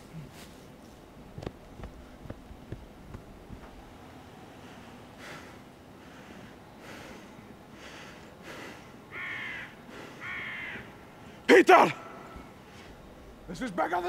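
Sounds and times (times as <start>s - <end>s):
crows cawing: 7.8s - 11.4s.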